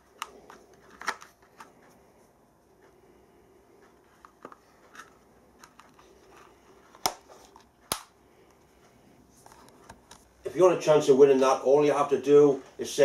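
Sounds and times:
case closing and latching clicks: 0:00.2 - 0:01.7, 0:06.9 - 0:08.2.

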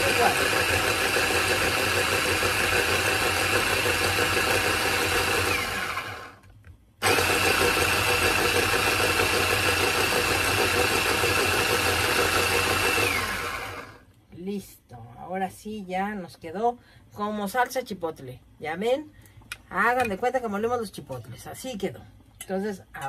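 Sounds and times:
electric blender running: 0:00.0 - 0:06.4, 0:07.0 - 0:14.0.

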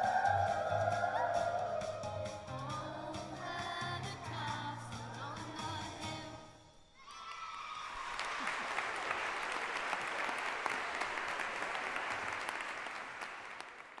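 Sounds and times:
audience applauding: 0:07.2 - 0:14.0.

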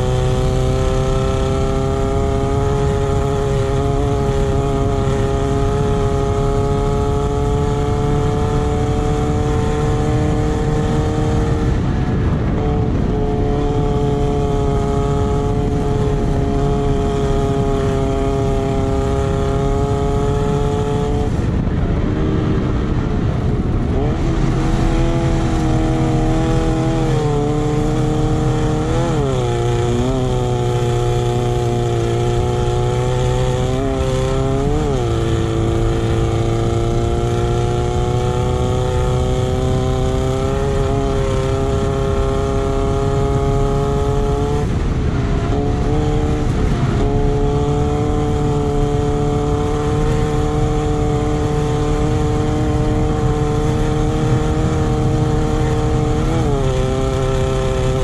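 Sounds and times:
racing buggy engine: 0:00.0 - 0:58.0
low rumble: 0:20.9 - 0:30.4.

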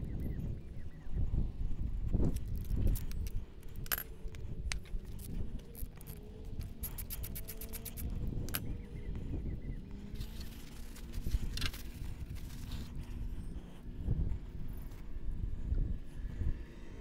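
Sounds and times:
small metallic clicks and clinks: 0:02.3 - 0:08.7.

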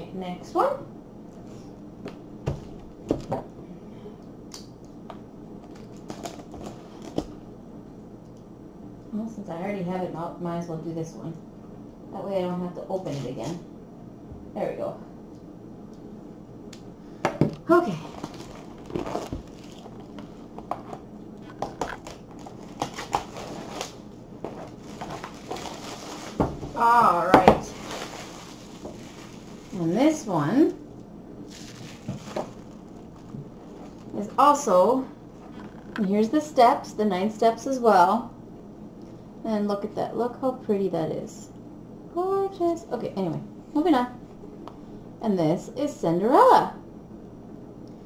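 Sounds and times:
cardboard box scraping and rustling: 0:27.7 - 0:29.8.

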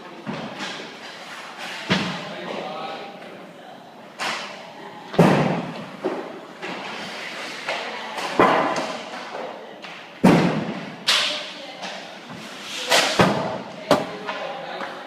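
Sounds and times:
pucks thudding into boards: 0:00.2 - 0:02.7, 0:04.2 - 0:15.0
hockey sticks hitting pucks: 0:05.2 - 0:15.0.

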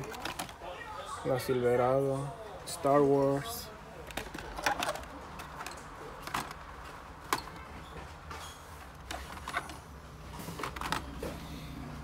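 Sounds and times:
plastic packaging clicks and crinkles: 0:00.0 - 0:00.6, 0:04.0 - 0:11.4.

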